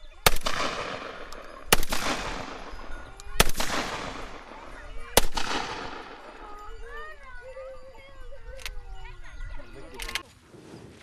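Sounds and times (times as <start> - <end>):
shotgun shots echoing: 0.2 - 6.3.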